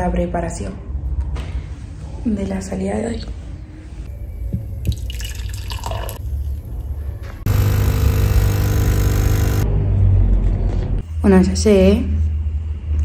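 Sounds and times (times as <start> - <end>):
coffee machine pump buzzing: 7.5 - 9.7.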